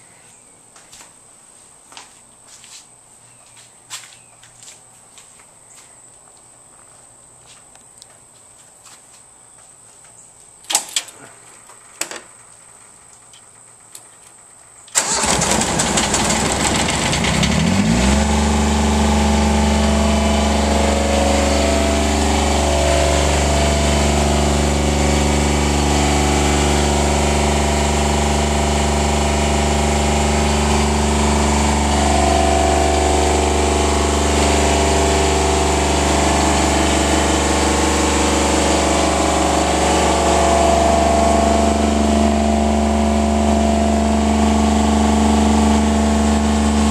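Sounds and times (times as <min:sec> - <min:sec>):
lawn tractor engine starting: 0:10.6 - 0:46.9.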